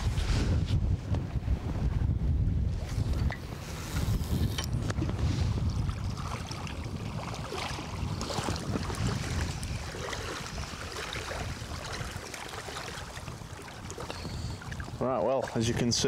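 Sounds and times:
wind buffeting microphone: 0:00.0 - 0:16.0
small waves lapping at shore: 0:05.2 - 0:16.0.

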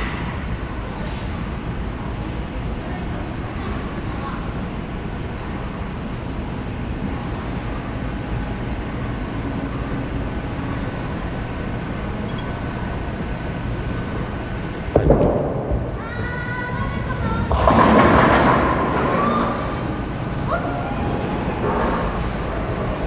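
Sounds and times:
bowling alley rumble: 0:06.7 - 0:23.0
bowling ball thud and rolling: 0:14.9 - 0:16.0, 0:17.4 - 0:19.9.

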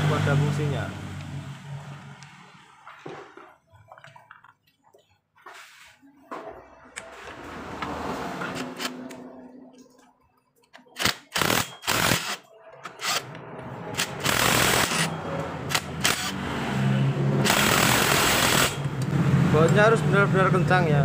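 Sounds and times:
impact wrench hammering: 0:13.0 - 0:16.4, 0:17.4 - 0:18.9.

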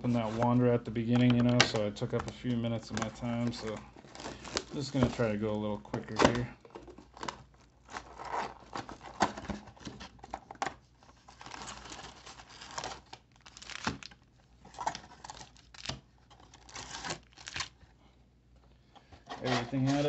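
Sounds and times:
plastic wrapping tearing and crinkling: 0:00.0 - 0:05.4, 0:07.1 - 0:09.4, 0:11.2 - 0:17.8.

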